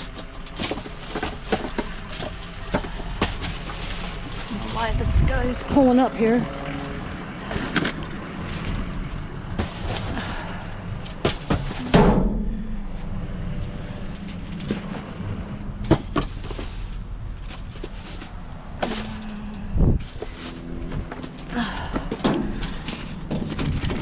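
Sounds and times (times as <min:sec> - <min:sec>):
rustles and knocks in dumpster: 0:00.0 - 0:05.3, 0:09.5 - 0:12.5, 0:14.4 - 0:24.0
vehicle engine running: 0:00.0 - 0:24.0.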